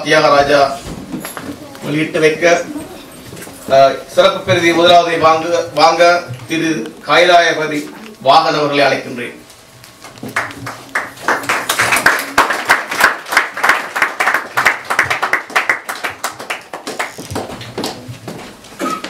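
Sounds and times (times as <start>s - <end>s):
audience applause: 10.3s - 17.6s.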